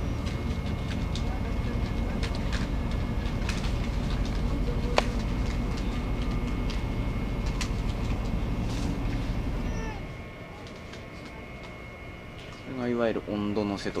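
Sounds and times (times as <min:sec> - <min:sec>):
ship engine rumble: 0:00.0 - 0:14.0
sharp clicks and rattles: 0:00.2 - 0:08.4.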